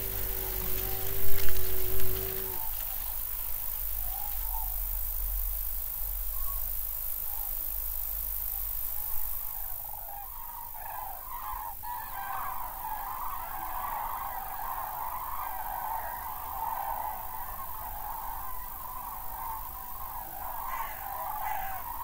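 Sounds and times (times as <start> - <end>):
birds calling: 0.0 - 3.1, 9.0 - 22.0
low steady rumble: 0.0 - 6.9.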